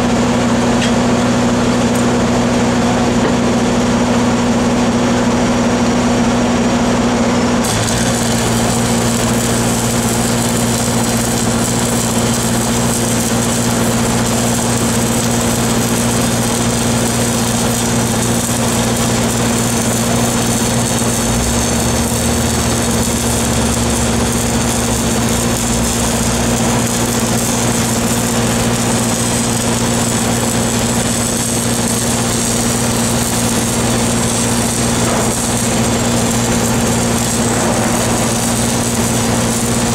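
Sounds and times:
engines running: 0:00.0 - 0:39.9
welding arc crackling: 0:07.6 - 0:39.9
deeper engine note: 0:34.7 - 0:39.9.

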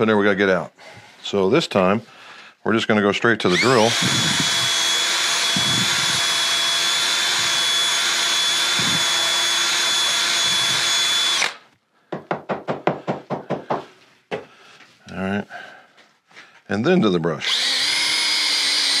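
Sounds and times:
cordless drill running: 0:03.5 - 0:11.7, 0:17.4 - 0:19.0.

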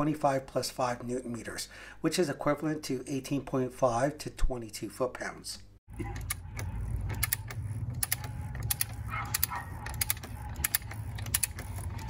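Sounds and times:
ratchet wrench clicking: 0:06.2 - 0:12.0.

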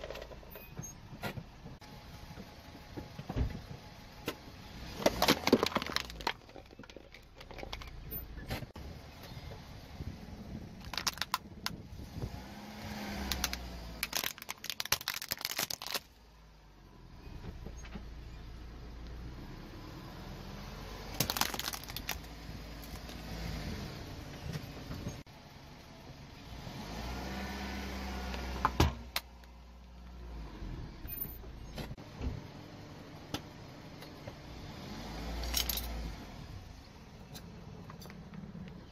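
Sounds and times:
low engine rumble: 0:00.0 - 0:38.9
plastic toys cracking and crunching: 0:05.0 - 0:08.0, 0:10.8 - 0:11.8, 0:13.2 - 0:16.2, 0:21.1 - 0:23.2.

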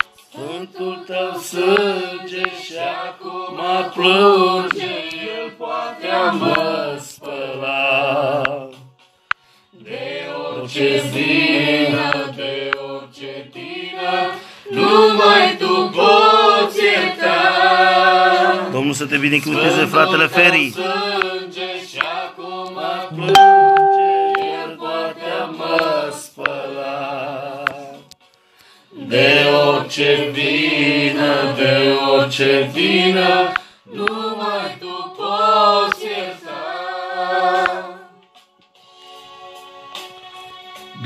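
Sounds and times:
woman singing with vibrato: 0:23.1 - 0:24.8.

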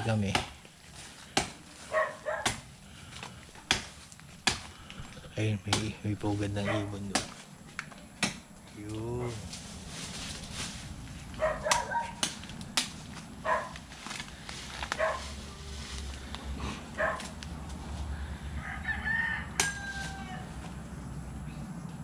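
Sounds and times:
sharp knocks: 0:05.7 - 0:06.0
rooster crowing: 0:18.1 - 0:20.8.

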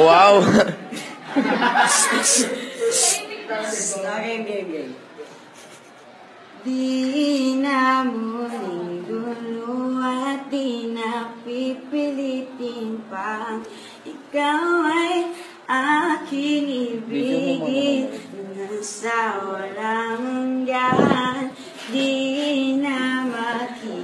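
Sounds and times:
person singing wordless melody: 0:06.6 - 0:24.0.

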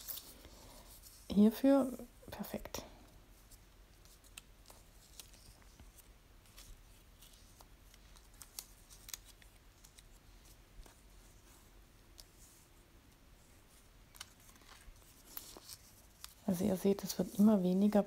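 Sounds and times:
paper rustling and ticking: 0:04.0 - 0:11.1, 0:14.1 - 0:18.0.

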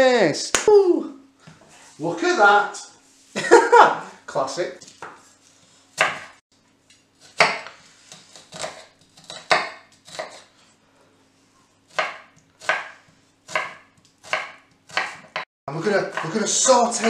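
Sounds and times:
knife chopping on wooden board: 0:06.0 - 0:06.4, 0:07.2 - 0:10.5, 0:11.9 - 0:17.0.

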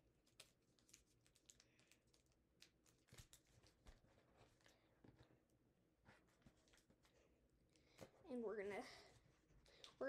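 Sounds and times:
paper crinkling while folded: 0:00.0 - 0:05.0, 0:06.0 - 0:07.4.

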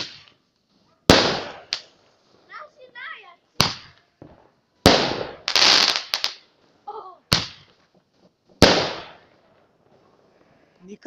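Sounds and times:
firework bangs: 0:00.0 - 0:00.4, 0:01.0 - 0:02.0, 0:03.6 - 0:06.5, 0:07.3 - 0:07.7, 0:08.6 - 0:09.5
firework burst with crackling: 0:01.1 - 0:01.9, 0:04.8 - 0:06.4, 0:08.6 - 0:09.3.

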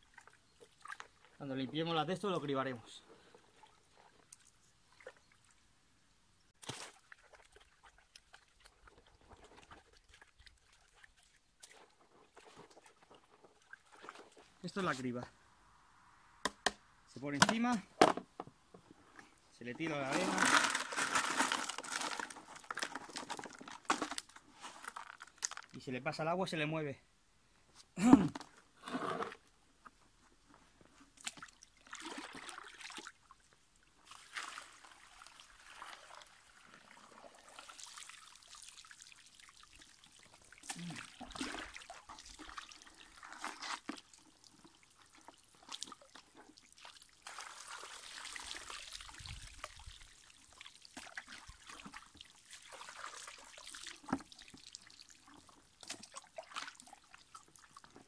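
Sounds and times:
bucket dipped into river: 0:00.0 - 0:01.8, 0:06.6 - 0:14.7, 0:19.8 - 0:25.8, 0:31.2 - 0:33.4, 0:34.0 - 0:58.0
water poured through gravel sieve: 0:19.8 - 0:25.8, 0:31.3 - 0:33.1, 0:34.0 - 0:57.9.

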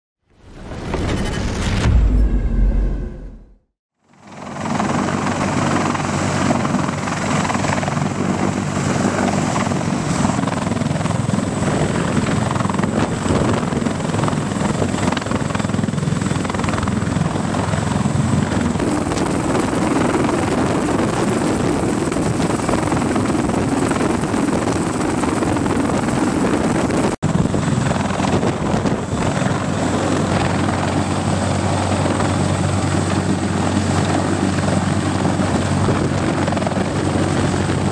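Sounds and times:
helicopter hovering: 0:04.1 - 0:37.9.

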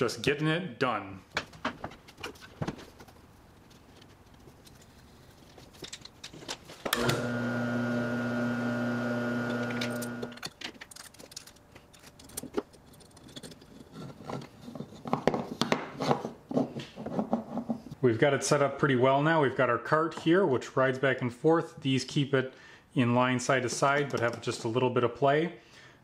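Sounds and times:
metal parts and wood clicking: 0:01.3 - 0:07.0, 0:09.8 - 0:17.9
electric motor humming: 0:07.0 - 0:10.4.

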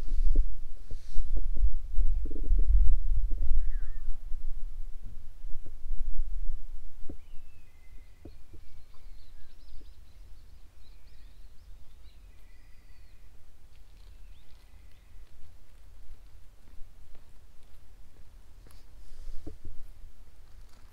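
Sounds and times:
steady low rumble: 0:00.0 - 0:07.2
small birds chirping: 0:03.5 - 0:04.2, 0:07.0 - 0:19.5.

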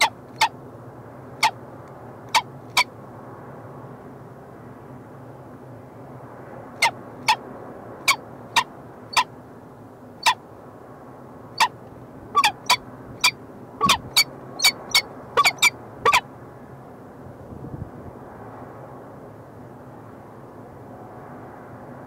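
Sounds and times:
low background hum: 0:00.0 - 0:21.4
falcons calling: 0:12.4 - 0:16.2.

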